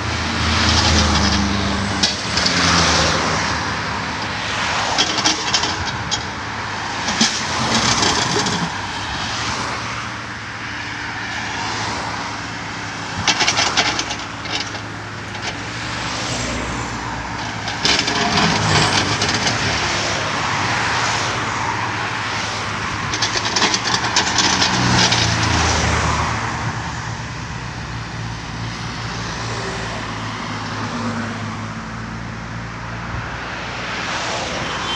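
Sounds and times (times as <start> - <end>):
excavator diesel engine running: 0.0 - 9.4, 10.0 - 30.1
steel bucket clattering in soil: 7.1 - 8.8, 13.2 - 15.6, 17.4 - 20.0, 23.1 - 25.9.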